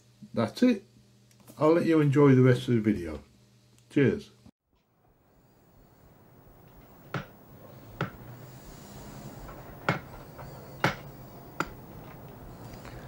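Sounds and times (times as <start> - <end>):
low steady hum: 4.8 - 13.0
cleaver chopping meat: 7.1 - 7.4, 8.0 - 8.3, 9.8 - 10.2, 10.8 - 11.8.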